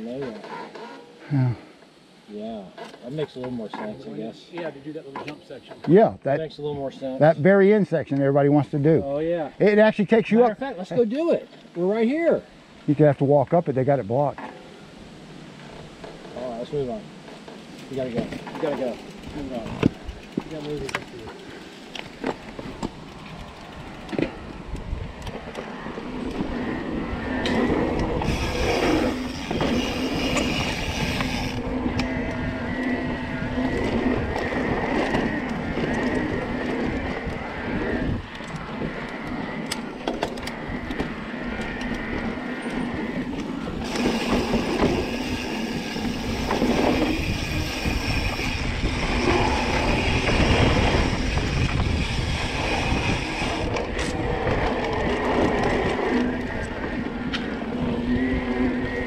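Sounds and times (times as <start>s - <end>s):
bike rattling and knocking: 15.6s - 24.6s, 27.5s - 32.9s, 38.4s - 57.5s
wind rumble on microphone: 19.3s - 21.3s, 22.0s - 59.0s
steady electric motor whine: 25.2s - 59.0s.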